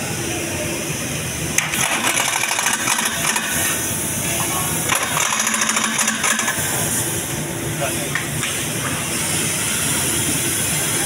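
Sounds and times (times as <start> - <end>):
pneumatic impact wrench hammering: 1.6 - 7.1.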